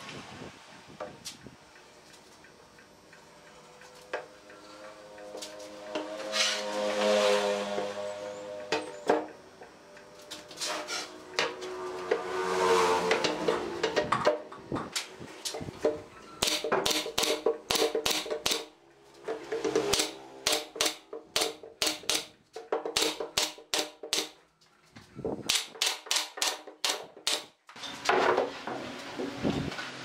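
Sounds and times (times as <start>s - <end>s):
nail gun firing: 16.4s - 18.7s, 19.9s - 22.3s, 22.9s - 24.4s, 25.5s - 27.5s.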